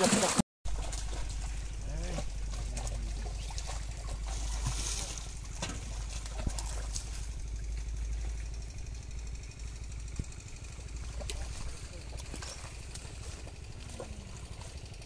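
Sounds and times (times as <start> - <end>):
water splashing from wading: 0.0 - 8.9, 10.4 - 15.0.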